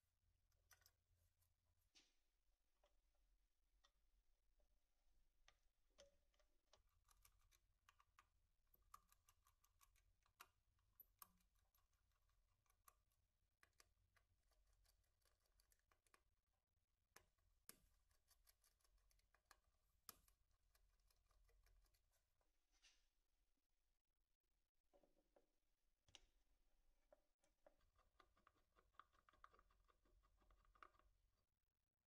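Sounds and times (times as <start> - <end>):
faint clicks and taps of handling: 0.5 - 3.2, 5.4 - 11.9, 17.1 - 23.2, 24.9 - 31.6.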